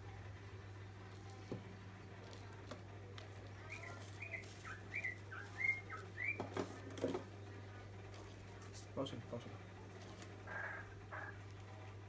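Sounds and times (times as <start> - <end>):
plastic bags rustling: 3.4 - 7.2.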